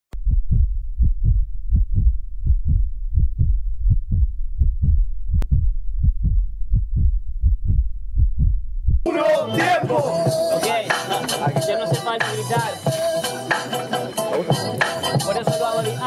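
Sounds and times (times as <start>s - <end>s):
heartbeat thumps: 0.1s - 9.1s.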